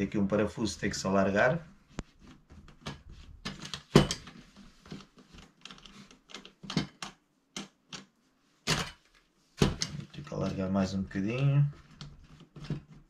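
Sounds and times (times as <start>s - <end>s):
light stand parts clicking and knocking: 2.3s - 8.1s, 8.7s - 10.1s.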